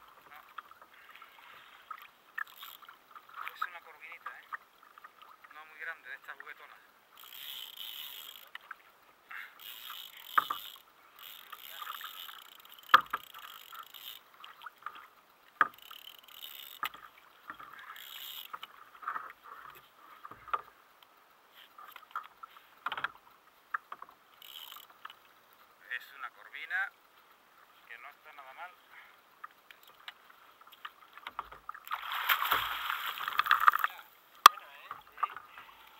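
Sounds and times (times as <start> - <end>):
water splashing and lapping: 0.0 - 20.8, 28.7 - 35.9
knocks and clicks on hull: 12.9 - 13.4, 29.4 - 35.5.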